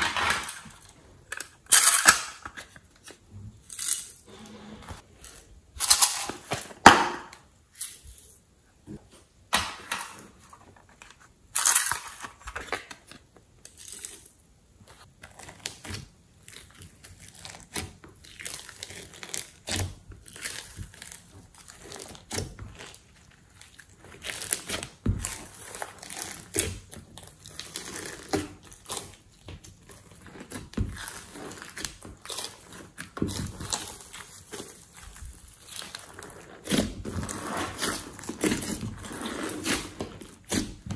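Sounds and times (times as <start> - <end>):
slime squishing with sticky crackles: 11.4 - 40.9
plastic packets crinkling and tearing: 15.2 - 40.9.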